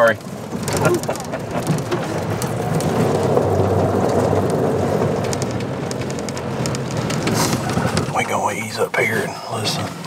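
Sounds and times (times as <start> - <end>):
tyres and engine rumbling: 0.0 - 10.0
small rattles: 0.2 - 8.3.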